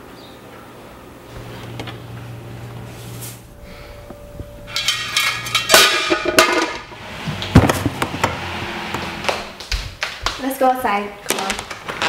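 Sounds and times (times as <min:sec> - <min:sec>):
metal cookware clattering: 0:04.7 - 0:07.0.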